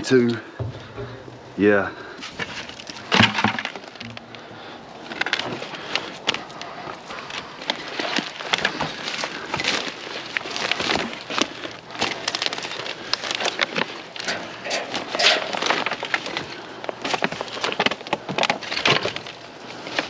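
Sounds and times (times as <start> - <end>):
plastic trash clattering: 2.2 - 4.4, 7.8 - 20.0.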